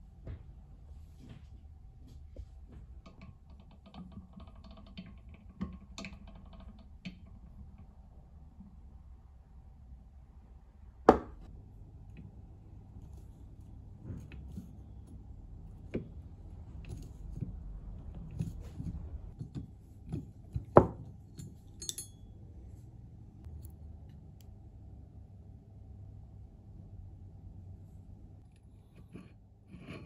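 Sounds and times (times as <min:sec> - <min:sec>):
small metal clicks and clinks: 0:21.3 - 0:22.3.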